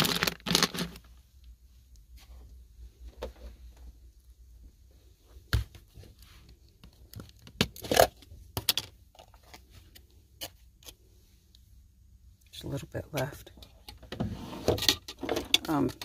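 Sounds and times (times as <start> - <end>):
packaging rustling and crinkling: 0.0 - 1.2.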